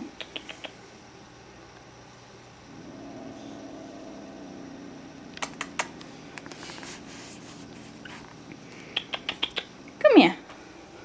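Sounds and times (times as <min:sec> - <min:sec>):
sharp clicks: 0:00.2 - 0:00.8, 0:05.3 - 0:06.1, 0:08.9 - 0:09.7
cat growling: 0:02.7 - 0:08.3.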